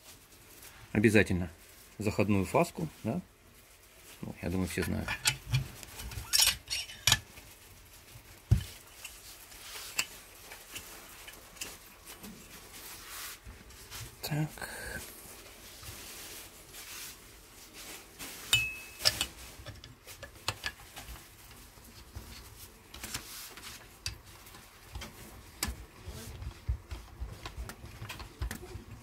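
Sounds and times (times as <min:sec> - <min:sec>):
metal parts clicking and clinking: 0:04.9 - 0:07.3
small taps and rubbing: 0:21.9 - 0:29.0.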